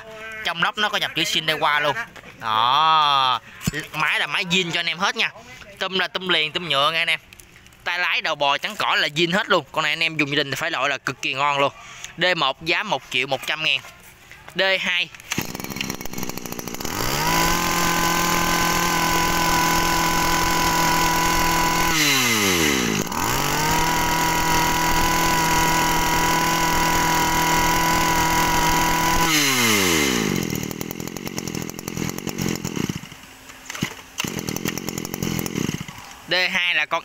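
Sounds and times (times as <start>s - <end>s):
brush cutter engine revving: 15.1s - 36.3s.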